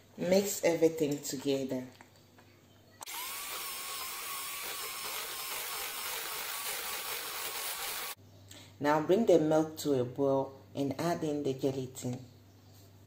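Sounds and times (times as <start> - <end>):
electric hand mixer whining: 3.0 - 8.2.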